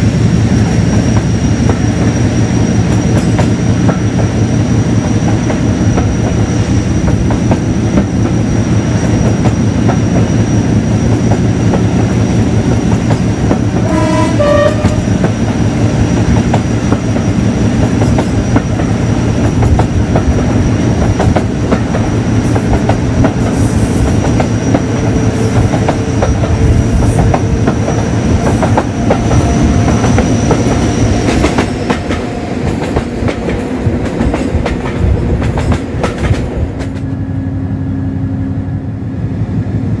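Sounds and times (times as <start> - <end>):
diesel locomotive engine throbbing: 0.0 - 40.0
two-tone train horn: 13.8 - 15.3, 25.0 - 31.6.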